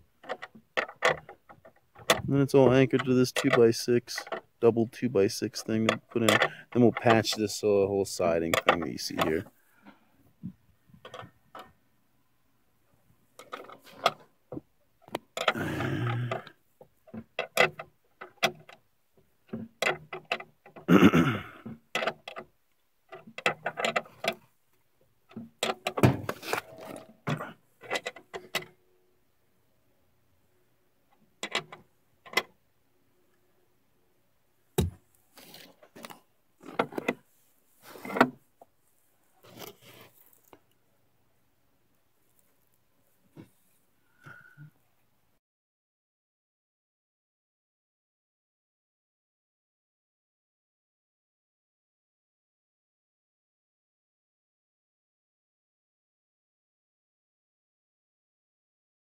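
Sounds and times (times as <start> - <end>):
rustling handling noise: 34.8 - 40.8.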